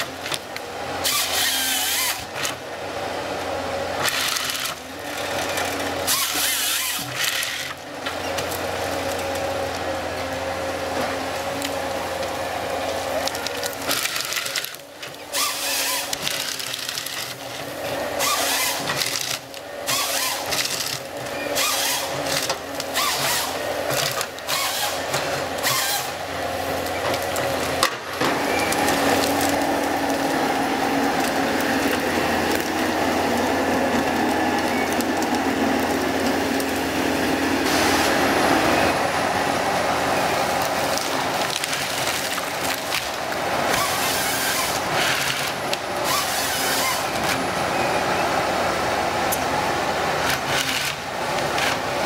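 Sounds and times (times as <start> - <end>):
harvester engine and hydraulics: 0.0 - 52.0
chainsaw cutting bursts: 1.0 - 2.4, 6.0 - 7.6, 15.3 - 16.2, 18.1 - 19.0, 19.8 - 20.6, 21.5 - 26.7, 43.6 - 45.4, 46.0 - 47.2.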